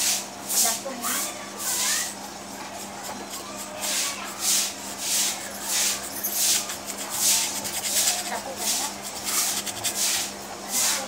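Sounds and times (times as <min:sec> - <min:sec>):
paintbrush scrubbing on canvas: 0:01.6 - 0:11.0.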